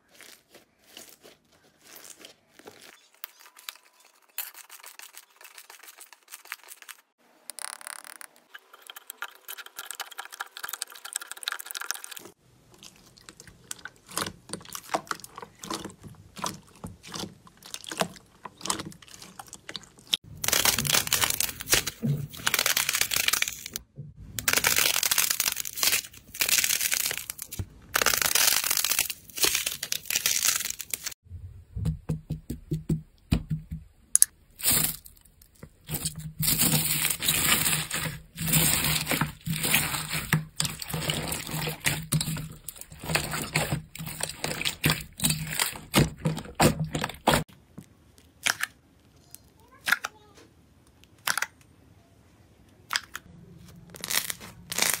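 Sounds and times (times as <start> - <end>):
slime stretching and tearing: 0.0 - 6.2, 12.2 - 23.8, 24.4 - 31.2, 34.6 - 47.4, 53.6 - 55.0
crunchy squishes of beaded slime: 0.0 - 7.2, 12.2 - 23.8, 34.5 - 47.7, 52.9 - 55.0.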